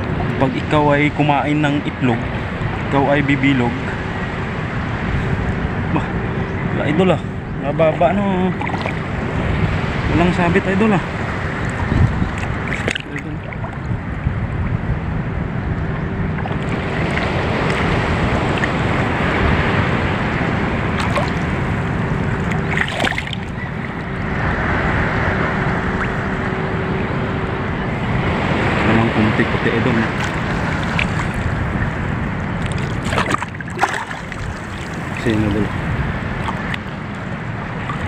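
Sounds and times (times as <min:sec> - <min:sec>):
sea water sloshing and lapping: 0:00.0 - 0:06.7, 0:07.8 - 0:14.8, 0:15.8 - 0:38.0.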